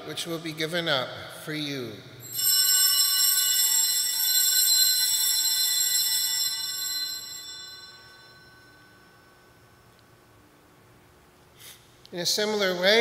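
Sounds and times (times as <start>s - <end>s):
altar bells ringing: 2.2s - 9.9s.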